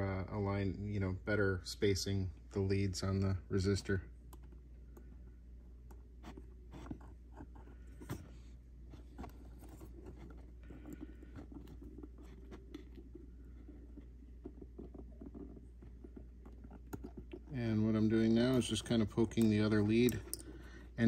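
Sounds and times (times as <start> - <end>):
low steady hum: 0.0 - 21.0
fingers handling wire leads: 8.9 - 21.0.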